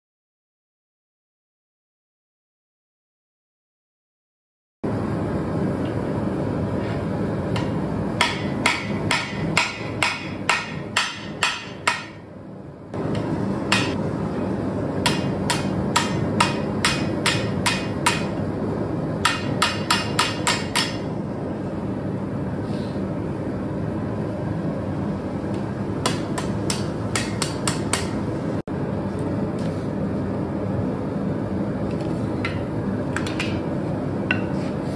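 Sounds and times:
hammer striking steel on anvil: 0:07.5 - 0:12.3, 0:13.1 - 0:14.0, 0:15.0 - 0:18.4, 0:19.2 - 0:21.1, 0:26.0 - 0:28.2, 0:34.3 - 0:34.6.

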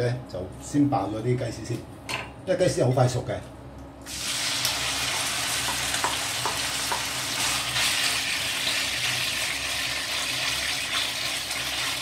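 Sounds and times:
chicken sizzling in hot oil: 0:04.1 - 0:12.0.

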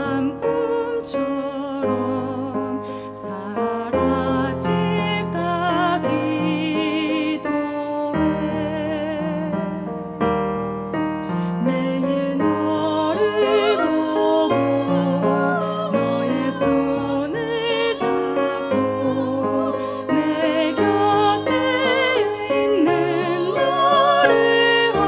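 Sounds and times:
woman singing with vibrato: 0:11.4 - 0:25.0.

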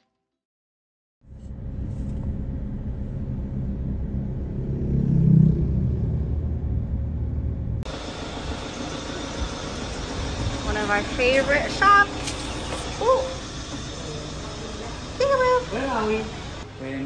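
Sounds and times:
rumble of traffic: 0:01.2 - 0:17.0
hissy road noise: 0:07.8 - 0:17.0.

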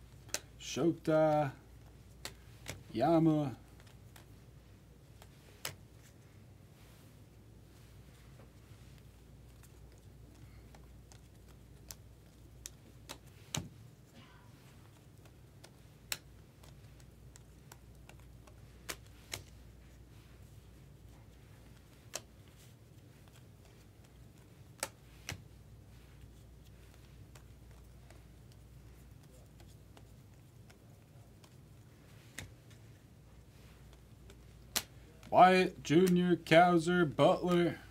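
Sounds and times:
faint low hum: 0:00.0 - 0:37.9
cards flicked off a stack: 0:12.6 - 0:13.8, 0:17.4 - 0:19.6, 0:24.7 - 0:25.5, 0:32.2 - 0:32.8, 0:33.9 - 0:35.3.

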